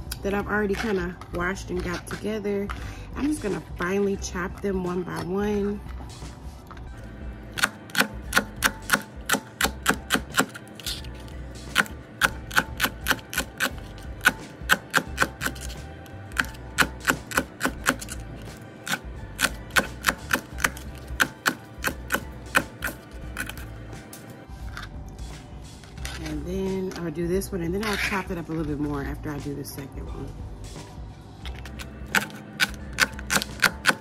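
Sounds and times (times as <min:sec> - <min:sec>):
knife chopping on plastic board: 0:07.6 - 0:10.6, 0:11.7 - 0:23.6, 0:32.0 - 0:34.0.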